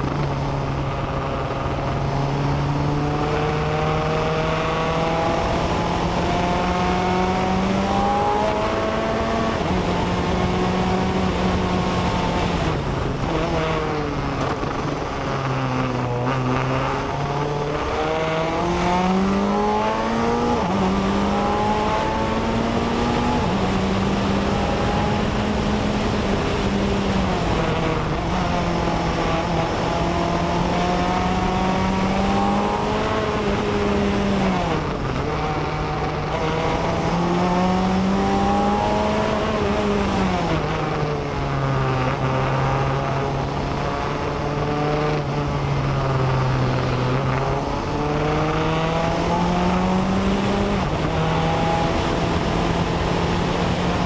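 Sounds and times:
race car engine accelerating: 0:00.0 - 0:54.0.

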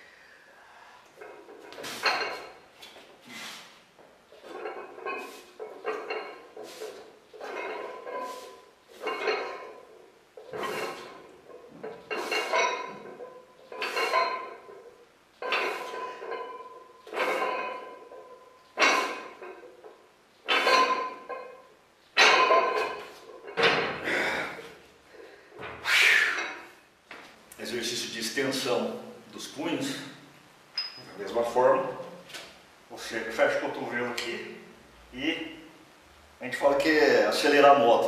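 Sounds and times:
weight plates clinking on barbell: 0:01.2 - 0:02.6, 0:04.4 - 0:23.9
barbell clattering onto rack: 0:07.4 - 0:09.8, 0:10.4 - 0:14.8, 0:15.4 - 0:21.6, 0:22.2 - 0:24.1
short metallic ring: 0:30.8 - 0:31.2.

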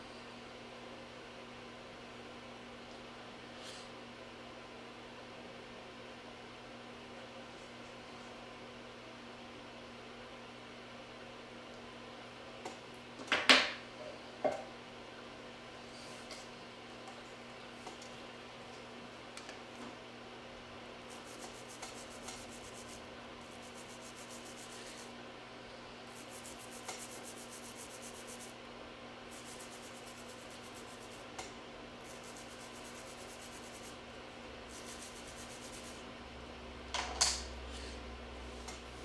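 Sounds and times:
nail file rubbing fingernails: 0:21.1 - 0:25.1, 0:26.1 - 0:28.5, 0:29.3 - 0:31.2, 0:32.1 - 0:34.0, 0:34.7 - 0:36.0.

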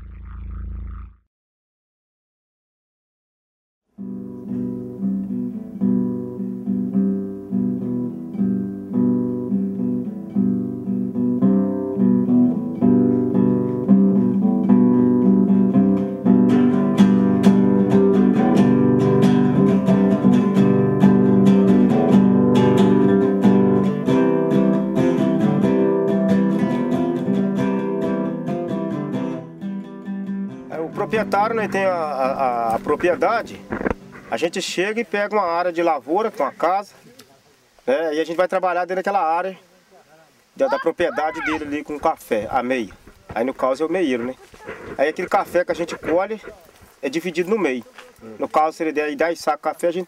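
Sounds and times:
acoustic guitar music: 0:03.9 - 0:35.6, 0:40.6 - 0:48.6.

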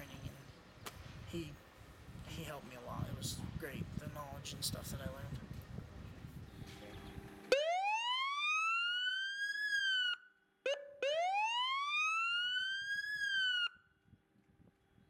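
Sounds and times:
short siren blip: 0:07.4 - 0:12.2
siren rising wails: 0:07.4 - 0:13.9.

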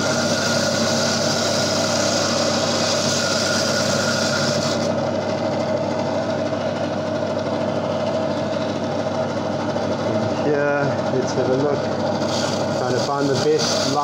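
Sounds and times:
bandsaw cutting coral: 0:00.0 - 0:05.0, 0:11.2 - 0:14.0
saw motor hum: 0:00.0 - 0:14.0.

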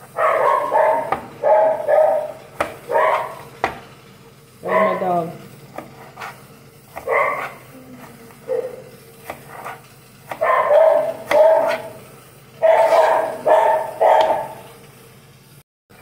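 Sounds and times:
dog barking: 0:00.1 - 0:03.4, 0:04.6 - 0:05.1, 0:07.0 - 0:07.6, 0:08.4 - 0:08.9, 0:10.3 - 0:12.0, 0:12.6 - 0:14.7.

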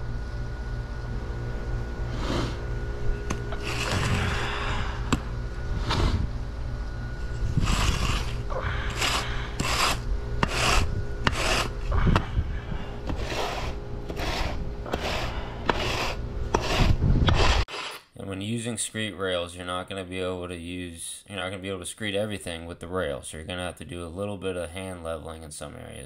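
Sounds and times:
steady low hum: 0:00.0 - 0:26.0
spirit level scraping sand: 0:02.0 - 0:02.7, 0:03.5 - 0:04.5, 0:05.7 - 0:06.3, 0:07.2 - 0:12.0, 0:13.1 - 0:18.1.

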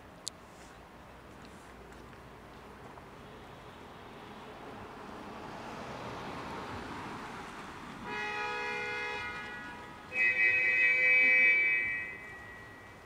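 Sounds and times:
vehicle horn blasts: 0:08.1 - 0:13.0.

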